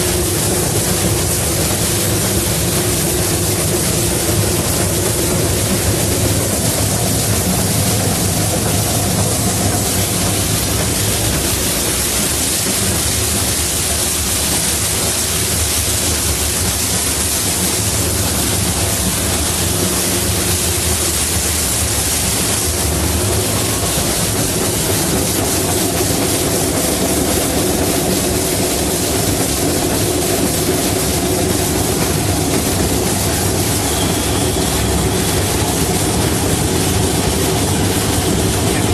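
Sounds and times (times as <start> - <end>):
steam locomotive running: 0.0 - 38.9.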